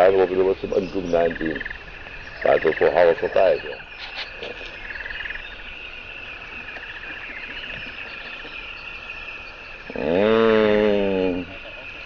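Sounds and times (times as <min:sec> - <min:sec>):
animal calls with pulsing trill: 0:00.0 - 0:12.0.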